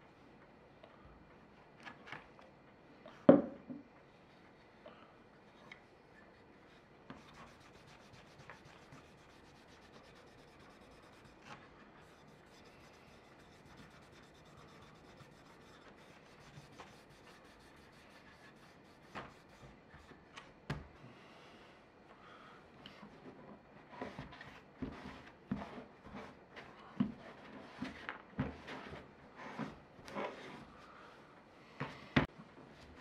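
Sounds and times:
cloth rubbing on wood: 7.2s - 19.6s.

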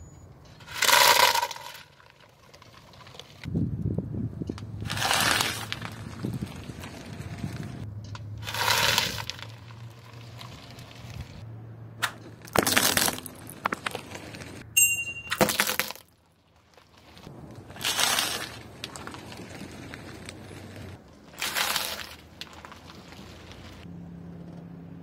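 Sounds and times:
tyre crunching snack sticks: 8.4s - 11.4s, 15.6s - 23.8s.

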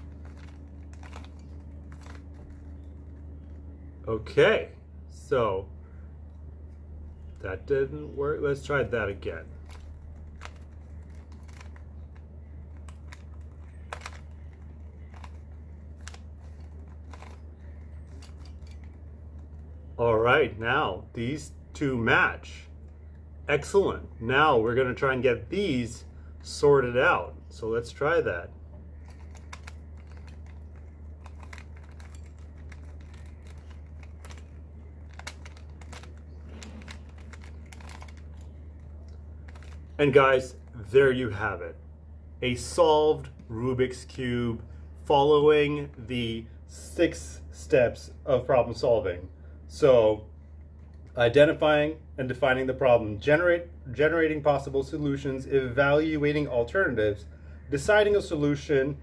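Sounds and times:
puzzle cube clicking: 0.0s - 3.1s, 9.5s - 19.6s, 29.0s - 40.0s
steady low hum: 0.0s - 59.0s
puzzle cube layers clicking: 29.1s - 40.0s.

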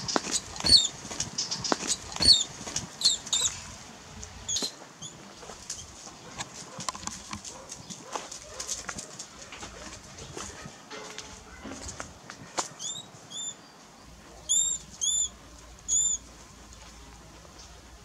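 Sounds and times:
dry grass and leaves rustling: 0.0s - 14.0s
high-pitched squeaks: 0.2s - 3.6s, 14.5s - 16.2s.

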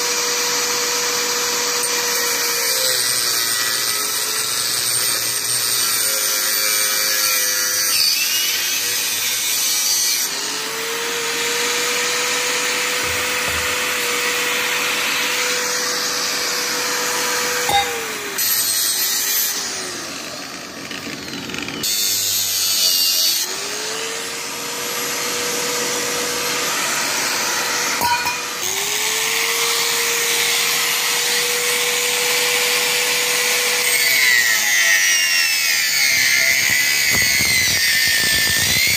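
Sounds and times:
angle grinder cutting metal: 0.0s - 38.9s.

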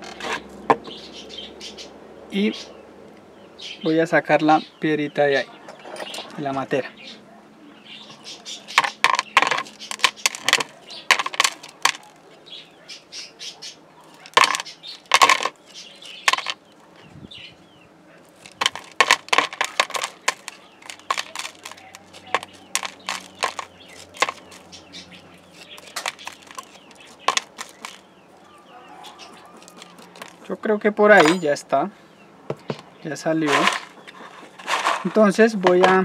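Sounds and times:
metal spoon prying pebbles: 8.8s - 12.2s, 14.1s - 16.6s, 18.3s - 28.0s, 29.4s - 30.5s.

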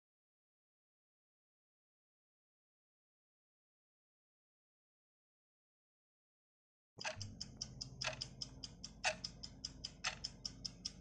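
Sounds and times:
countdown clock ticking: 7.0s - 11.0s.

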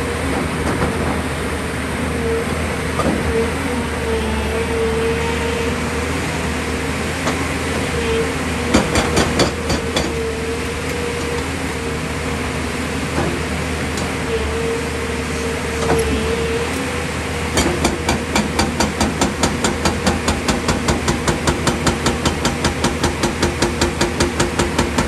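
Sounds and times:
excavator engine running: 0.0s - 25.0s
hydraulic breaker hammering stone: 6.6s - 25.0s
sharp knocks: 8.7s - 11.5s, 17.6s - 24.8s.

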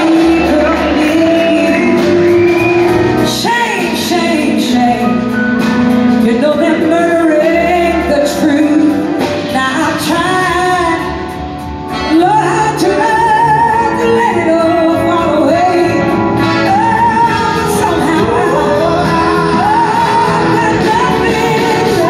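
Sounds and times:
live blues-rock band with singer: 0.0s - 22.0s.

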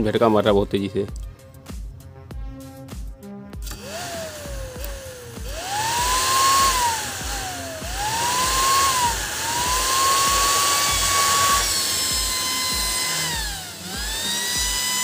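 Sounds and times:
small cooling fan whining: 3.7s - 15.0s.

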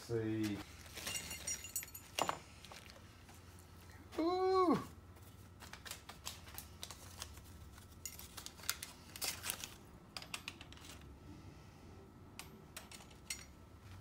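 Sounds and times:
small metal parts clinking: 0.9s - 2.9s, 8.0s - 9.5s, 12.4s - 13.6s.

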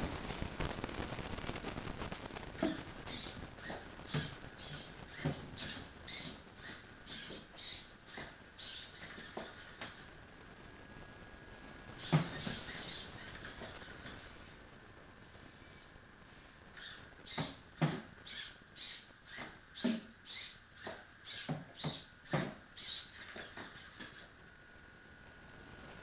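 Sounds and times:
robot servos whirring: 2.6s - 10.1s, 12.0s - 14.6s, 15.2s - 24.4s.

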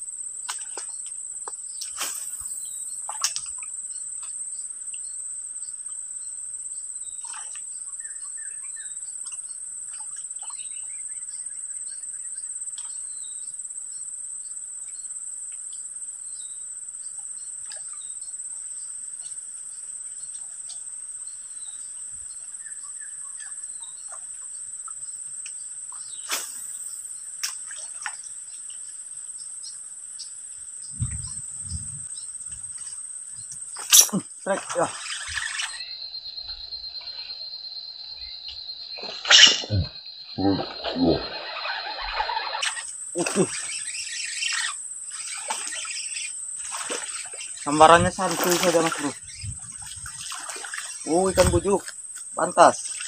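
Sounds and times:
insects droning: 0.0s - 53.0s
bird chirps: 29.6s - 51.8s.

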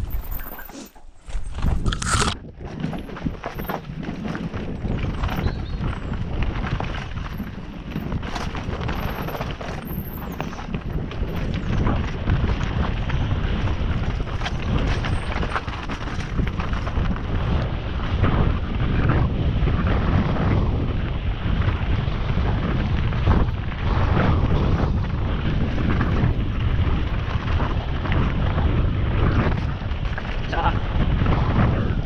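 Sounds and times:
tyres crunching on stones: 0.0s - 17.1s
bike clattering and rattling: 0.0s - 32.0s
wind rumble on microphone: 0.0s - 32.0s.

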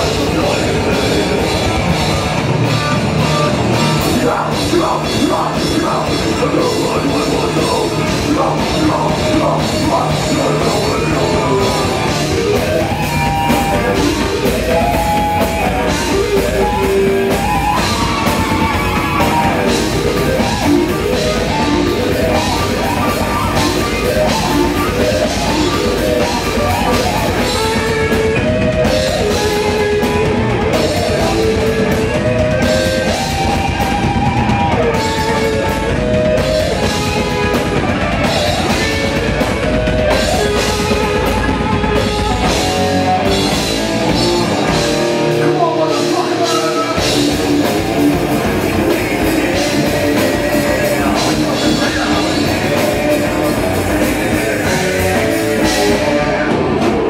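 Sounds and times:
heavy metal band playing: 0.0s - 57.0s.

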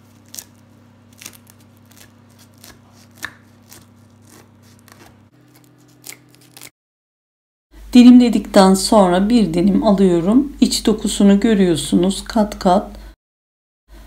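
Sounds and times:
knife slicing crisp pastry: 0.0s - 6.7s
low steady hum: 7.8s - 13.2s.

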